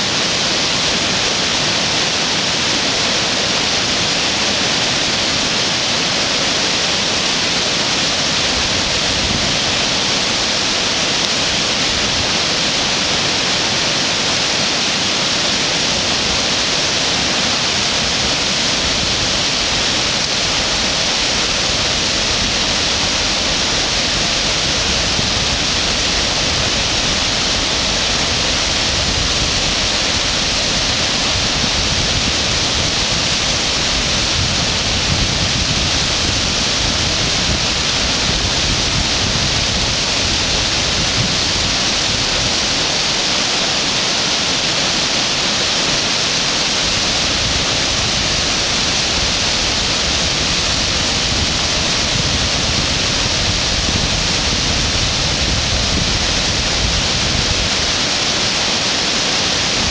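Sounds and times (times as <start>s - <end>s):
river rapids roaring: 0.0s - 59.9s
water pouring over dam: 0.0s - 59.9s.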